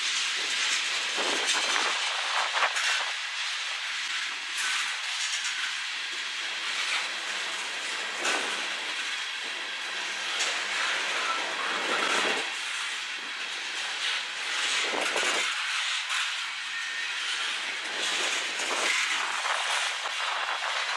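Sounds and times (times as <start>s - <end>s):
train wheels hissing on rail: 0.0s - 20.9s
wheels clacking over rail joints: 0.0s - 20.9s.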